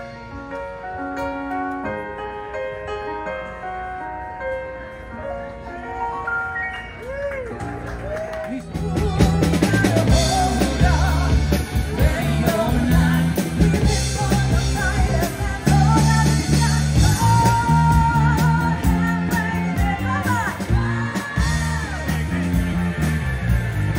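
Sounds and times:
live rock band playing: 0.0s - 23.9s
bass guitar: 6.8s - 23.9s
drum kit: 8.6s - 23.9s
woman singing: 9.0s - 22.5s.

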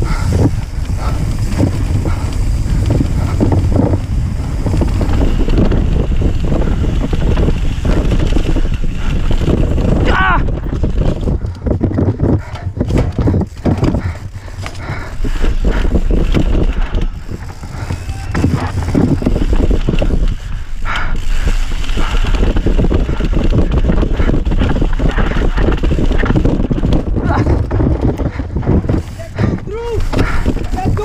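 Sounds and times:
bike rattling over rocky trail: 0.0s - 31.0s
low rumble: 0.0s - 31.0s.

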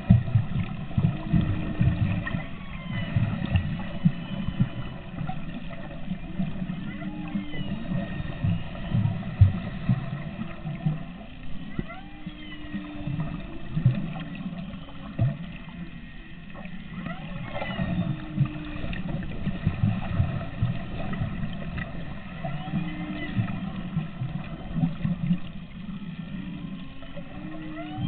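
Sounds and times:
whale low moans: 0.0s - 28.0s
whale whoops and squeals: 1.1s - 28.0s.

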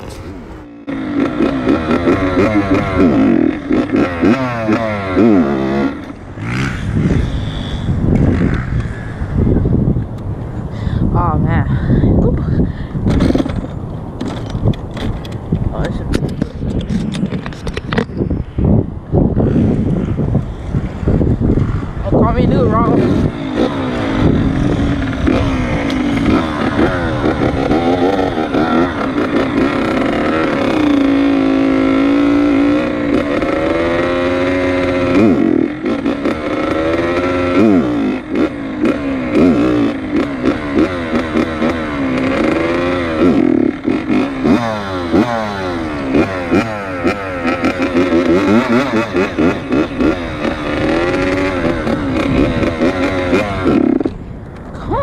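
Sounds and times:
dirt bike engine revving: 0.0s - 9.9s, 16.4s - 54.3s.

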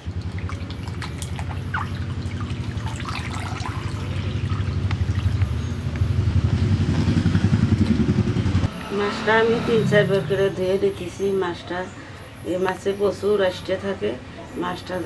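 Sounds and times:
water splashing in a bowl: 0.0s - 5.8s
low pulsing rumble: 0.0s - 11.4s.

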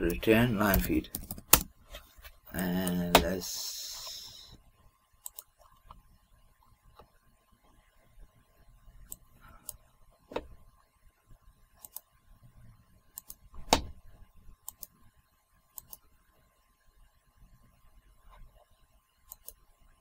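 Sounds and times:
computer mouse clicks: 5.2s - 6.0s, 11.8s - 12.1s, 13.2s - 13.9s, 14.6s - 15.0s, 15.7s - 16.1s, 19.3s - 19.6s.

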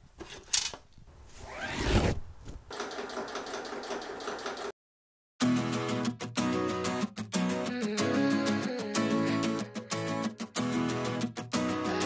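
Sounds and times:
sewing machine running: 2.7s - 4.7s.

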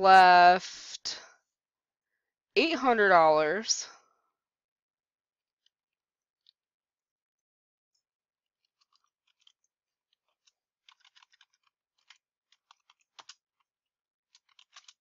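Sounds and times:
computer keyboard typing: 10.9s - 13.4s, 14.3s - 15.0s.

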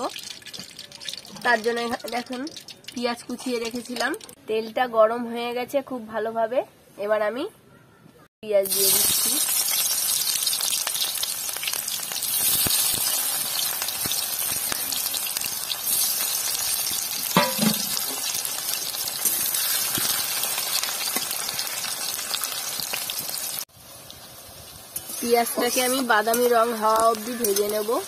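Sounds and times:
onions sizzling in oil: 0.0s - 4.4s, 8.5s - 28.0s.

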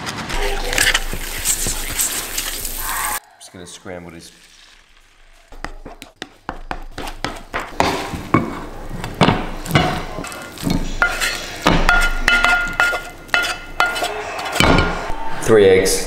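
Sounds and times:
wooden spatula scraping frying pan: 0.3s - 3.2s, 5.5s - 14.9s.

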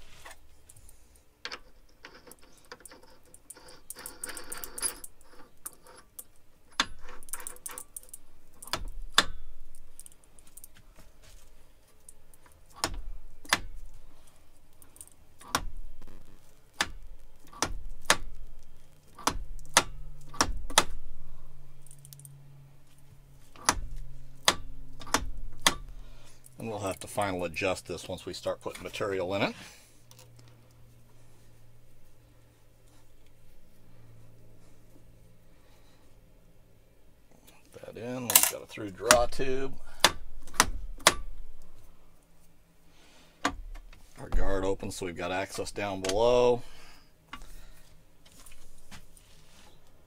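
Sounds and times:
low steady hum: 0.0s - 50.0s
sharp metallic clicks: 14.7s - 21.0s.

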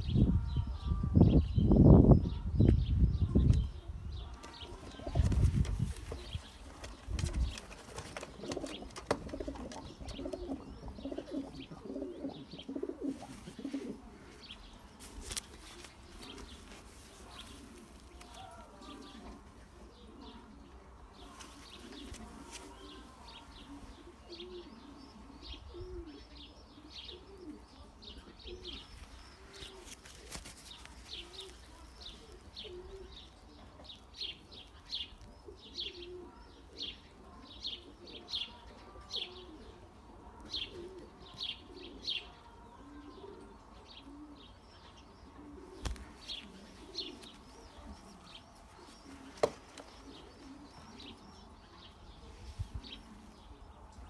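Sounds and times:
pigeons cooing: 4.5s - 14.7s, 21.6s - 34.6s, 35.2s - 54.0s.

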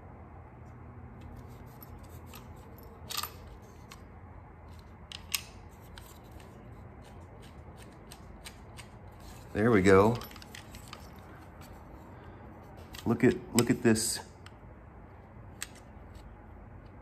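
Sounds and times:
plastic parts clicking and rubbing: 4.7s - 11.8s.

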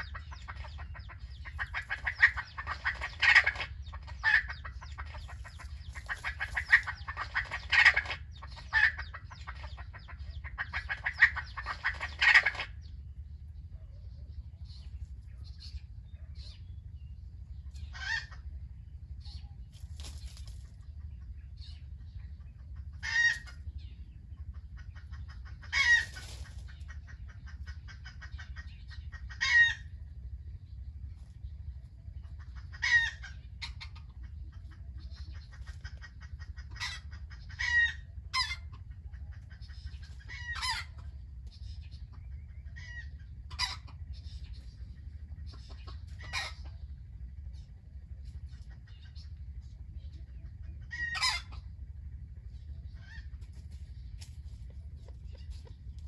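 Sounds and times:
chicken calling: 0.0s - 12.8s, 17.7s - 18.7s, 21.2s - 30.0s, 32.2s - 41.2s, 42.0s - 44.2s, 45.3s - 47.0s, 50.4s - 51.8s
chicken clucking: 0.0s - 13.0s, 17.6s - 30.4s, 31.1s - 56.0s
low rumble: 0.0s - 56.0s.

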